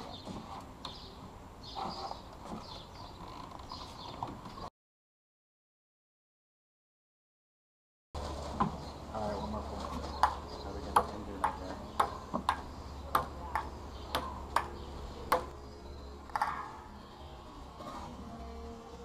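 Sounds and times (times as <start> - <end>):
ball bouncing on table: 10.2 - 14.7
ping pong ball clicking off paddles: 10.2 - 15.6.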